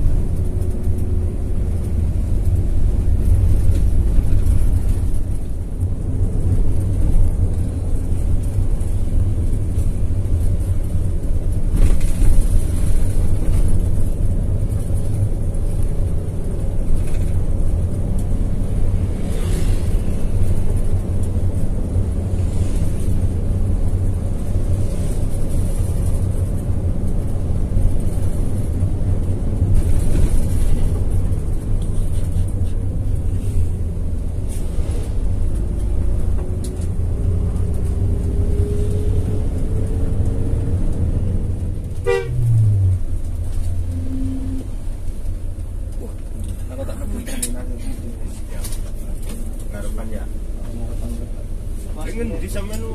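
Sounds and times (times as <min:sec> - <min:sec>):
bus engine drone: 0:00.0 - 0:52.9
road noise: 0:00.0 - 0:52.9
horn toot: 0:42.0 - 0:42.6.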